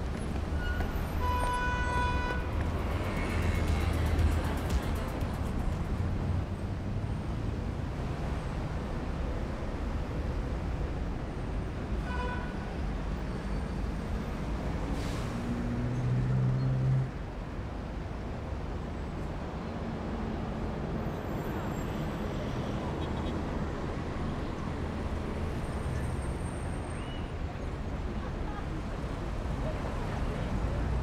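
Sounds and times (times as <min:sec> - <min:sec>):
passing cars and buses: 0:00.0 - 0:31.0
vehicle engine drone: 0:02.4 - 0:07.6.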